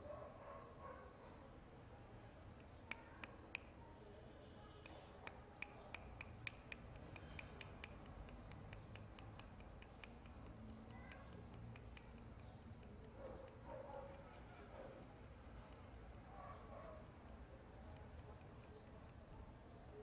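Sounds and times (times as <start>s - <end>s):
tortoise claws clicking on tile: 5.2s - 19.5s.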